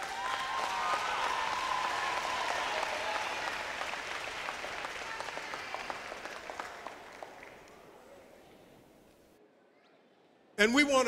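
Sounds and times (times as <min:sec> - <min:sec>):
audience cheering: 0:00.0 - 0:06.8
audience applauding: 0:00.0 - 0:07.9.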